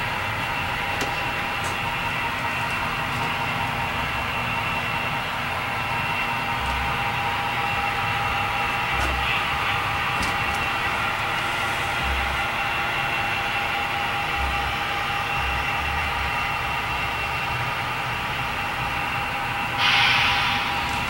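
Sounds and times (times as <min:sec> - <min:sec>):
mechanical hum and hiss: 0:00.0 - 0:21.0
burst of hiss: 0:19.8 - 0:21.0.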